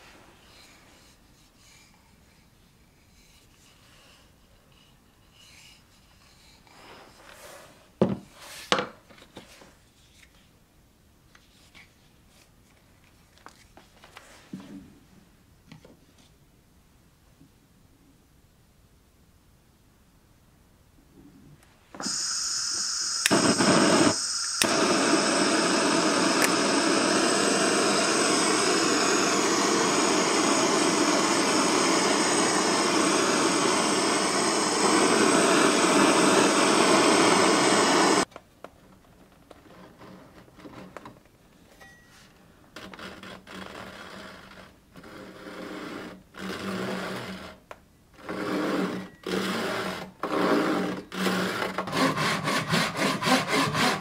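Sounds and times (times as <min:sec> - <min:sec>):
blowtorch hissing: 0:22.0 - 0:38.3
blowtorch ignition click: 0:22.0 - 0:38.3.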